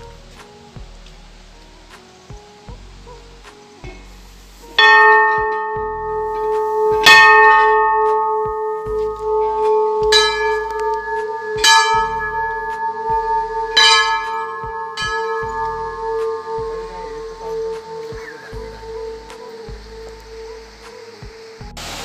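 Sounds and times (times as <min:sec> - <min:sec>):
large brass bell ringing: 0:04.8 - 0:20.8.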